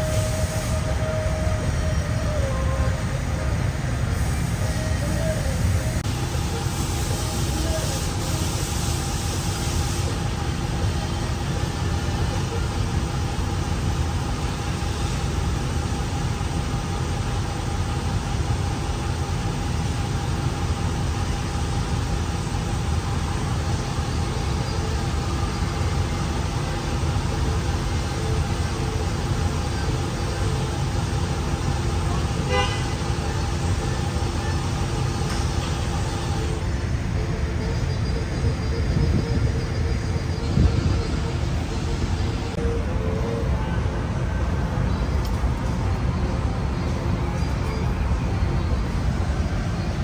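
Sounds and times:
mechanical drone: 0:10.0 - 0:50.0.

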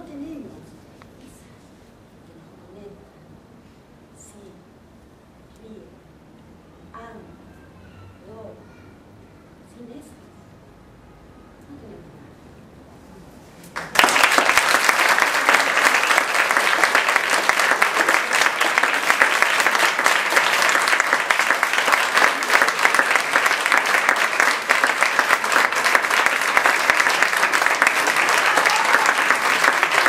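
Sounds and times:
audience applauding: 0:13.8 - 0:30.0.

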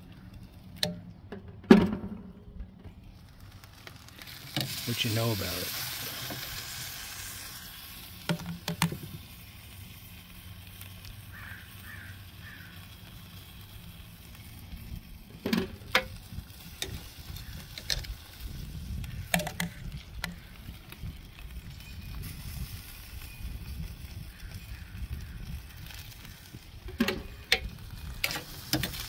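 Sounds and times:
chicken sizzling on a grill: 0:03.0 - 0:29.0
metal tongs clacking: 0:26.9 - 0:29.0.

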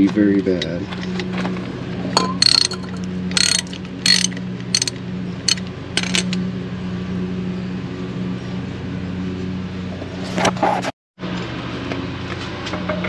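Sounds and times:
low hum: 0:01.8 - 0:08.6
socket ratchet clicking: 0:02.4 - 0:06.4.

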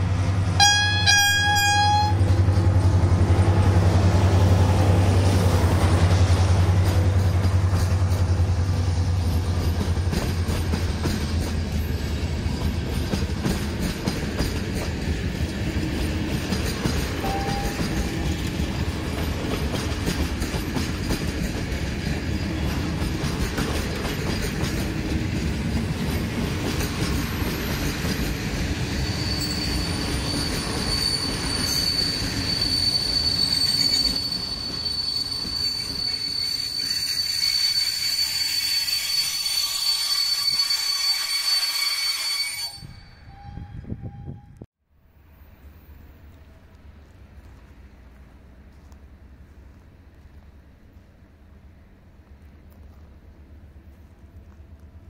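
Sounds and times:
train wheels rumbling on track: 0:00.0 - 0:44.6
high-pitched wheel squeal: 0:00.6 - 0:02.3, 0:17.2 - 0:18.5, 0:28.8 - 0:44.6.

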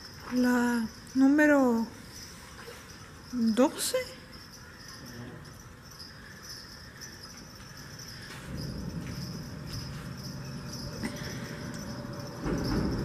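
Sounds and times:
crickets chirping: 0:00.0 - 0:13.0
low rumble: 0:08.5 - 0:13.0.

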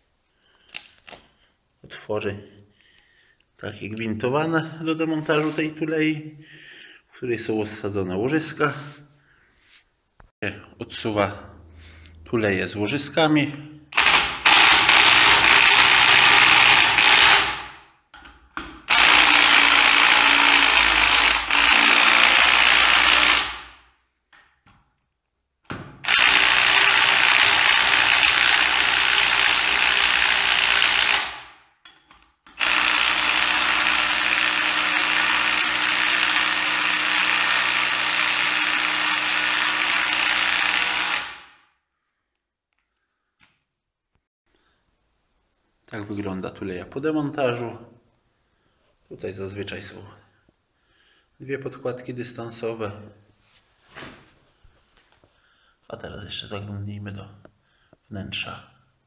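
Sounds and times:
impact wrench driving bolts: 0:14.0 - 0:23.7.

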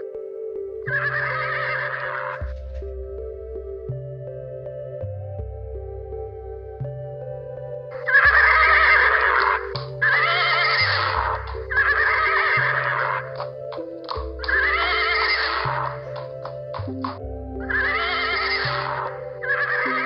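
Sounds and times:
soft background music: 0:00.0 - 0:20.0
horse neighing: 0:00.9 - 0:02.5, 0:08.0 - 0:16.6, 0:17.7 - 0:20.0.

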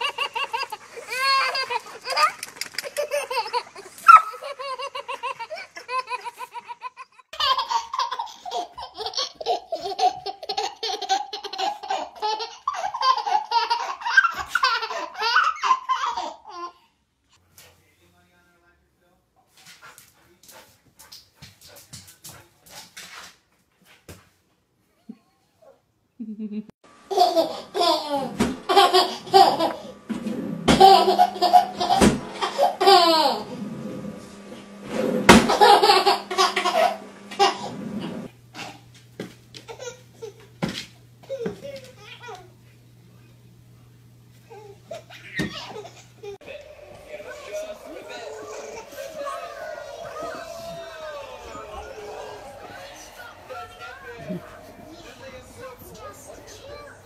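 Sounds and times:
second baby laughing: 0:00.0 - 0:16.8, 0:26.2 - 0:30.0, 0:30.7 - 0:33.6, 0:35.3 - 0:37.7
baby laughing: 0:00.0 - 0:16.9, 0:27.1 - 0:30.0, 0:30.7 - 0:33.6, 0:35.4 - 0:37.7, 0:39.6 - 0:40.5, 0:44.5 - 0:57.0.

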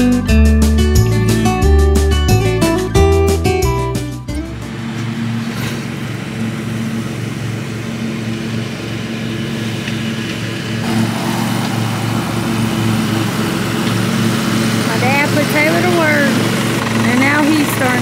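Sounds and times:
riding lawn mower engine: 0:04.3 - 0:18.0.

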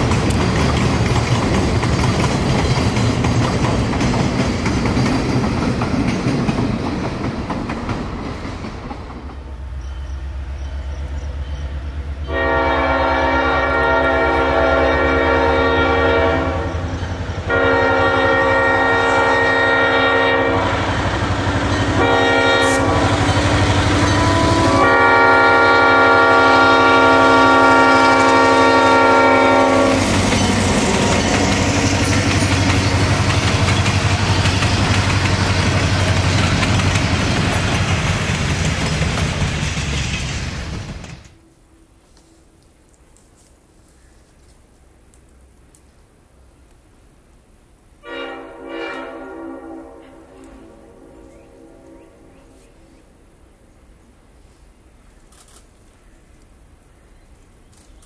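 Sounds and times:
rail car wheels clacking: 0:00.0 - 0:12.5, 0:20.5 - 0:41.4
diesel locomotive rumble: 0:00.0 - 0:41.4
train horn blasts: 0:12.2 - 0:33.1, 0:48.0 - 0:52.6.

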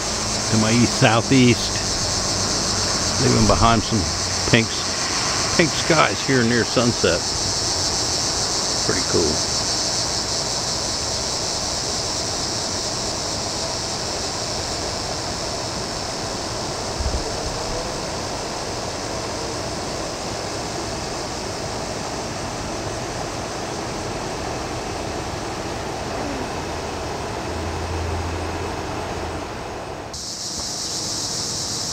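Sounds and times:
broad background rush: 0:00.0 - 0:31.9
insects trilling: 0:00.0 - 0:31.9.

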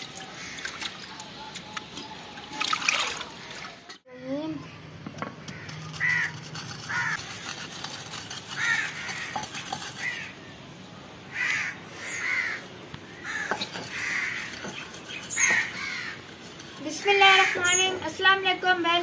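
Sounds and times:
crow cawing: 0:00.4 - 0:00.8, 0:05.4 - 0:07.2, 0:08.5 - 0:10.3, 0:11.3 - 0:12.6, 0:13.2 - 0:14.6, 0:15.4 - 0:16.2
pestle pounding in mortar: 0:05.9 - 0:10.1, 0:13.4 - 0:16.0.

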